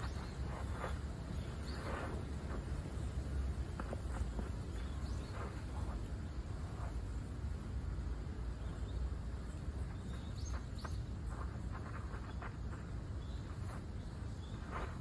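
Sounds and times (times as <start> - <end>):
low outdoor rumble: 0.0 - 15.0.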